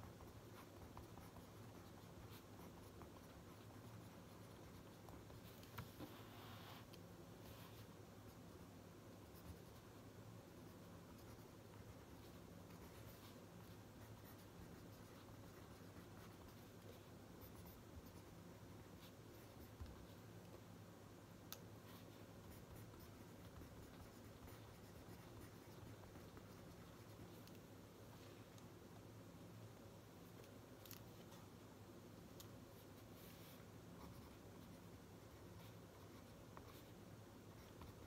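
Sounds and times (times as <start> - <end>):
pen scratching on paper: 0.0 - 6.9, 11.1 - 18.3, 21.8 - 27.6, 32.8 - 38.0
low steady hum: 0.0 - 38.0.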